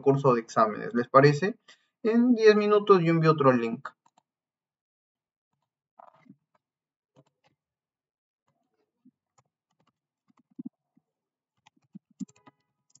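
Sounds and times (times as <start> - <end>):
computer keyboard clicks and taps: 11.6 - 13.0.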